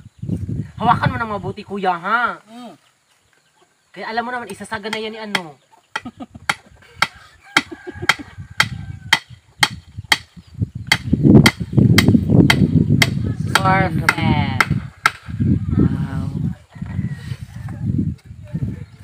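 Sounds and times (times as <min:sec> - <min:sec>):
wooden post being pounded: 0:04.5 - 0:15.3.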